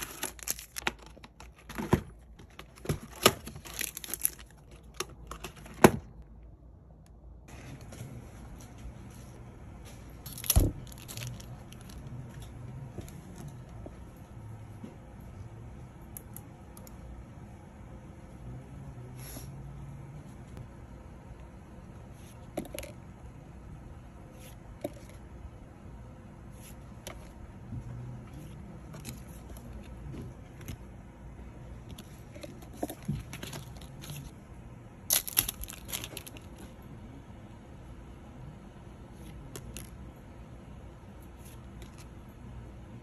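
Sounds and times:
cards rustling: 0.0s - 6.0s.

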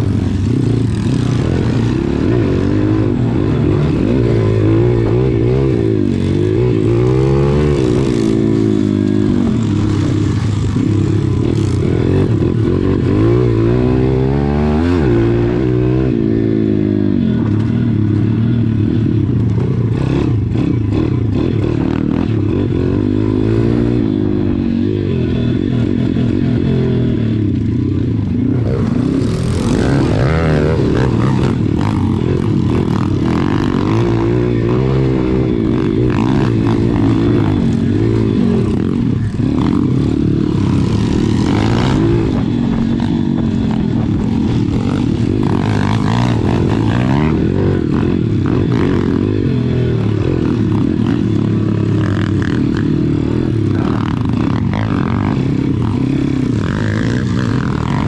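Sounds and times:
motorbike engine revving: 0.0s - 58.0s.

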